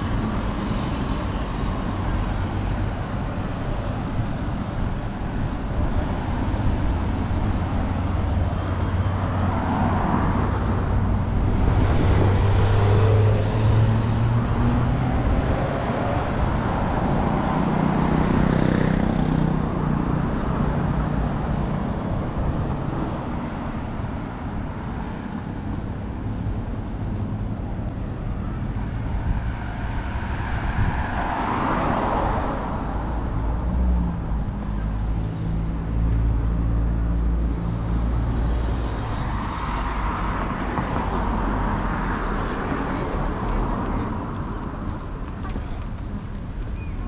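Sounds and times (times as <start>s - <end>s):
vehicles passing: 0.0s - 47.0s
high-pitched squeal: 37.4s - 40.6s.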